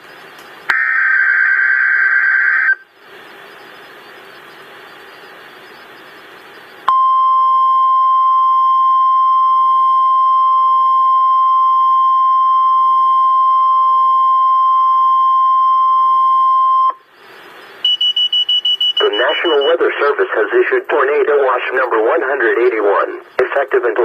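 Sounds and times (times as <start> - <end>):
faint radio hiss: 0.0 - 6.9, 16.9 - 24.0
steady alarm tone: 0.7 - 6.8, 17.1 - 20.2.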